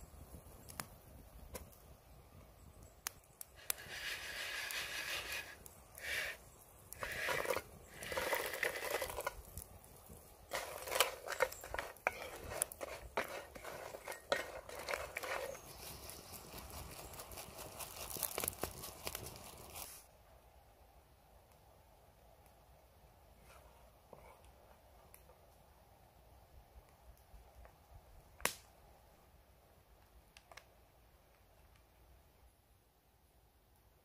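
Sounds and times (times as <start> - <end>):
wooden spoon stirring in pot: 7.0 - 9.4, 10.5 - 16.0.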